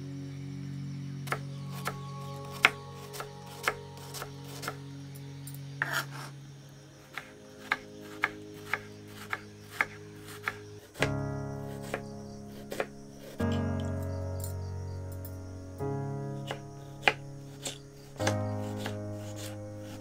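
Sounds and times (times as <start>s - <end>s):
soft background music: 0.0s - 20.0s
knife chopping on wooden board: 5.8s - 6.3s, 7.1s - 11.1s, 11.8s - 12.0s, 12.7s - 13.4s, 16.4s - 19.6s.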